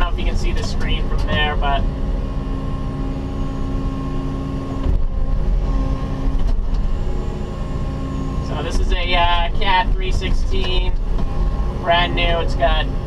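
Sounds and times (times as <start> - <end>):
excavator bucket digging: 0.0 - 1.9, 8.5 - 12.7
excavator diesel engine: 0.0 - 13.0
hydraulics running: 0.0 - 13.0.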